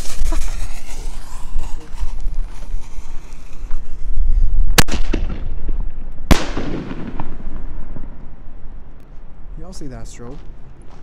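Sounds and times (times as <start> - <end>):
firework bangs: 0.0 - 8.2
rolling echo: 4.8 - 8.9.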